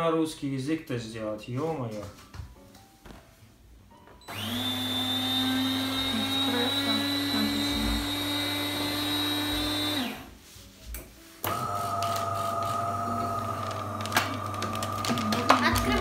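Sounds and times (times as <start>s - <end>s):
coffee machine motor whirring: 4.3s - 10.3s, 11.5s - 16.0s.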